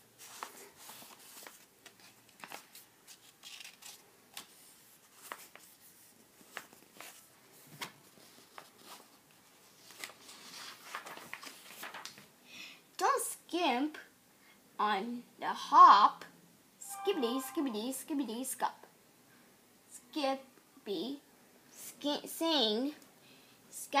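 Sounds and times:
book pages turning: 0.2 - 12.3.

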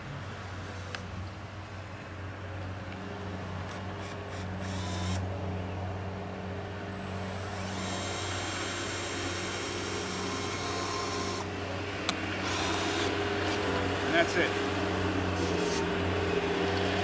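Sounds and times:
cordless drill driving screw: 3.7 - 5.2, 7.2 - 11.5, 12.4 - 13.2.

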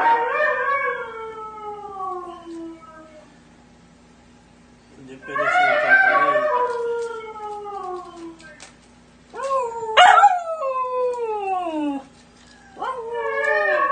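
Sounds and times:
puppy howling: 0.0 - 3.4, 5.2 - 8.6, 9.3 - 13.9.

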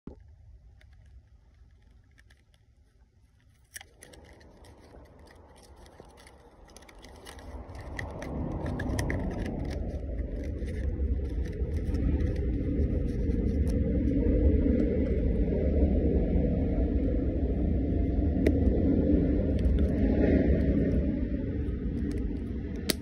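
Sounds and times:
low rumble: 0.1 - 23.0
cardboard box crackling and scraping: 0.9 - 14.1.

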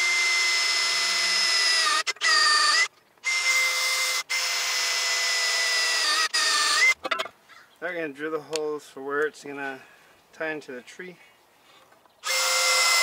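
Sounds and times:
cordless drill whining: 0.0 - 7.0, 12.2 - 13.0.

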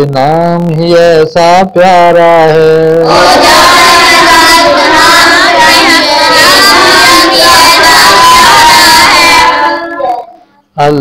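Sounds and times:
high-pitched solo voice singing: 3.1 - 10.5.

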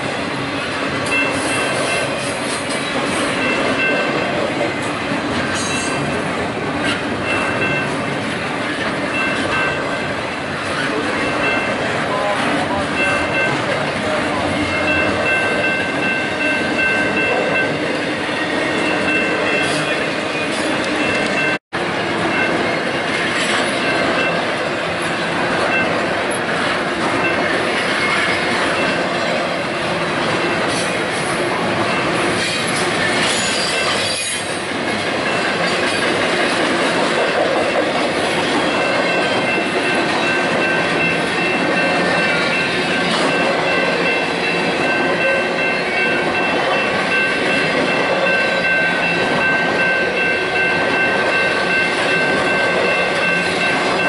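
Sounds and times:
freight train wheels rushing: 0.0 - 54.0
high wheel squeal: 31.9 - 34.6.

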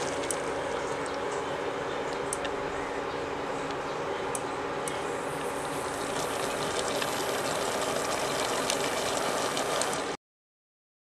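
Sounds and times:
pot simmering with crackles: 5.4 - 10.2.

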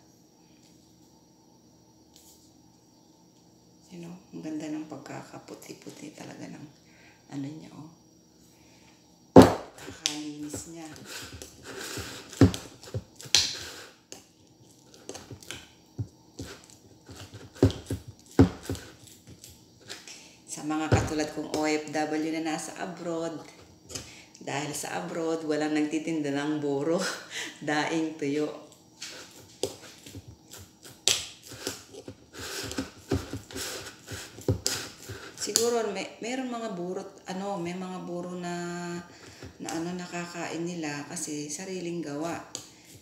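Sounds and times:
food crinkling and squishing: 9.7 - 20.2, 28.7 - 35.6.

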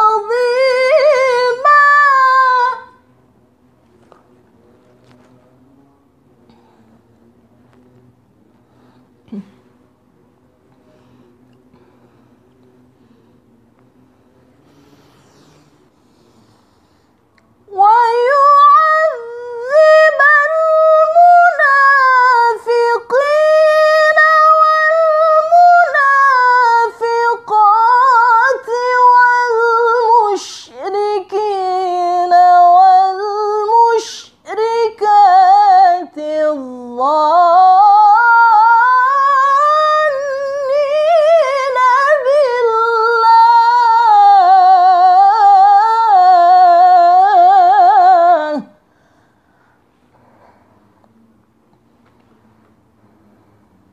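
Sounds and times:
woman reciting melodically: 0.0 - 3.2, 17.6 - 48.9.

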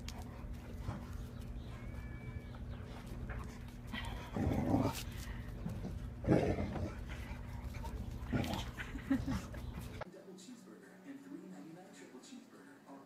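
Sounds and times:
dog making low rough sounds: 0.0 - 10.0
steady low hum: 0.0 - 10.0.

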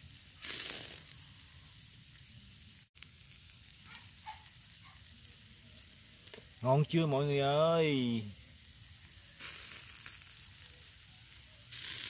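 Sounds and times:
mussels sizzling on grill: 0.0 - 12.0.

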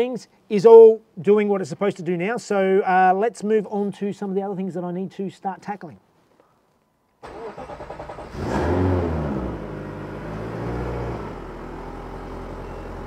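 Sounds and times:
car engine starting and idling: 7.2 - 13.0.

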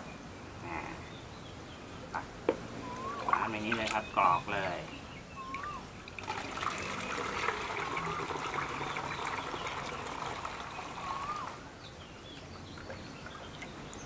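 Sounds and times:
liquid trickling into bottle: 2.9 - 4.2, 5.4 - 11.6.

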